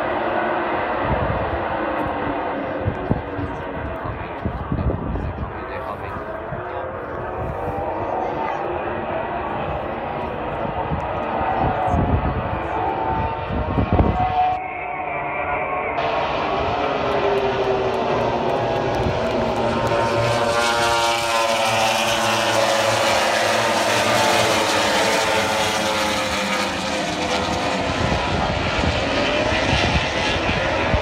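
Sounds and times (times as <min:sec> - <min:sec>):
racing motorcycles passing: 0:07.8 - 0:31.0.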